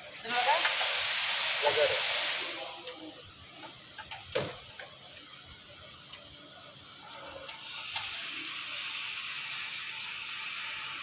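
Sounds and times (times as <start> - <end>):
clicks and knocks of tools: 3.6 - 6.3.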